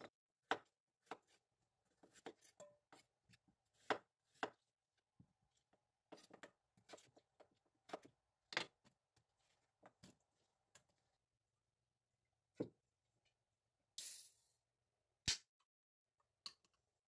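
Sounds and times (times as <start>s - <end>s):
knife chopping on wooden board: 0.4s - 1.4s, 3.8s - 4.6s.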